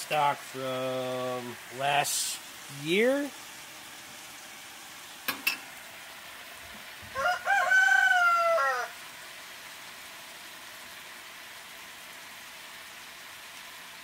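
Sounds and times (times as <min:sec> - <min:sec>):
rooster crowing: 0:07.0 - 0:09.0.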